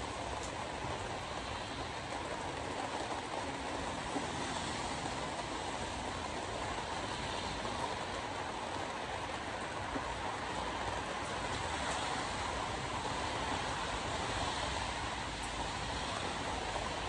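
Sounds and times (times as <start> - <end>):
rain on windshield: 0.0 - 17.0
tyres on wet road: 0.0 - 17.0.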